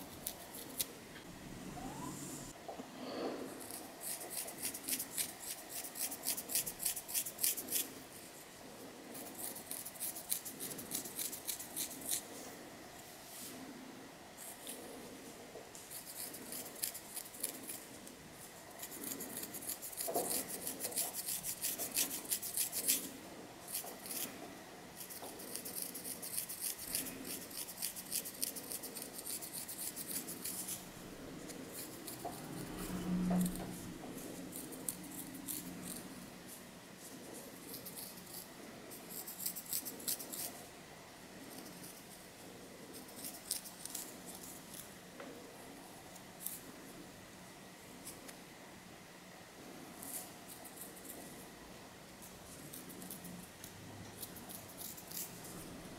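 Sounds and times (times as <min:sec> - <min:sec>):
fingernails scratching scalp: 0:03.6 - 0:08.0, 0:09.1 - 0:12.3, 0:15.9 - 0:18.0, 0:18.8 - 0:23.1, 0:23.7 - 0:24.3, 0:25.0 - 0:36.1, 0:37.2 - 0:40.6, 0:54.2 - 0:55.7.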